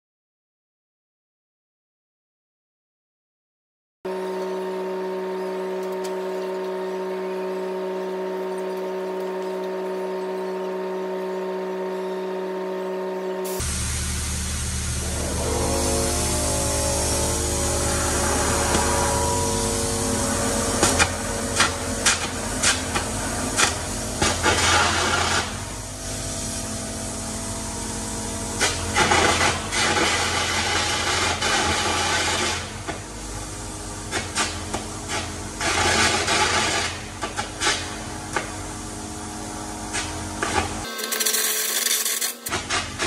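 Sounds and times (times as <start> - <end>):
machine humming: 4.1 - 43.0
arc gouging crackling and hissing: 13.5 - 27.6.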